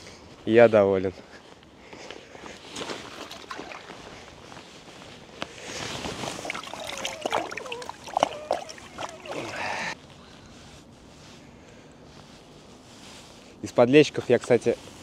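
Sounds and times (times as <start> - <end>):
faint outdoor hiss: 0.0 - 15.0
water splashing: 2.8 - 4.4, 6.1 - 10.0.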